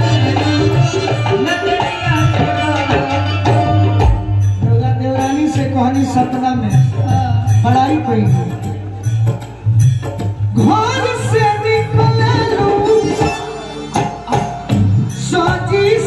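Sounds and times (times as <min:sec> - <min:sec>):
woman singing: 0:00.0 - 0:03.9, 0:10.6 - 0:14.6, 0:15.2 - 0:16.0
hand-drum rhythm: 0:00.0 - 0:16.0.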